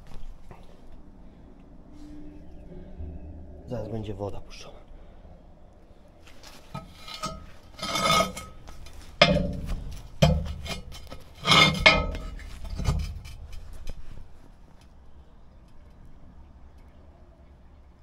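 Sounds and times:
sewer cover scraping and knocking: 6.4s - 14.1s.

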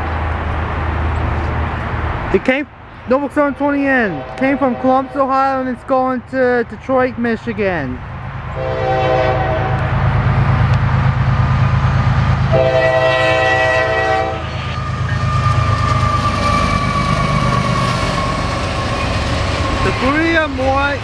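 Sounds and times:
diesel engines rumbling: 0.0s - 21.0s
locomotive horn blasts: 4.0s - 5.4s, 8.6s - 10.0s, 12.5s - 15.8s
train wheels on rails: 8.2s - 21.0s.

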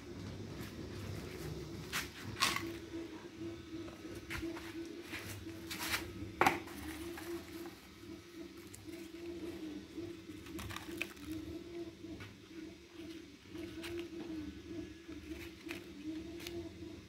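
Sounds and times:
machine motor hum: 0.0s - 17.0s.

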